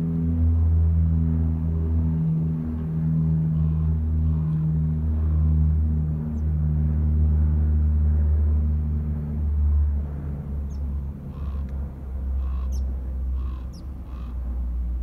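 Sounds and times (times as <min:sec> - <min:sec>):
aircraft engine drone: 0:00.0 - 0:15.0
short bird calls: 0:12.4 - 0:14.4.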